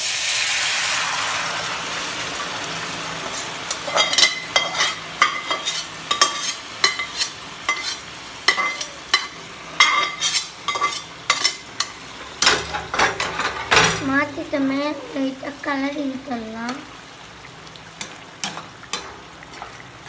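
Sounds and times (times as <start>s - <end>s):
curry sizzling in a hot pan: 0.0s - 20.0s
metal pot clinking and scraping pan: 3.7s - 13.9s.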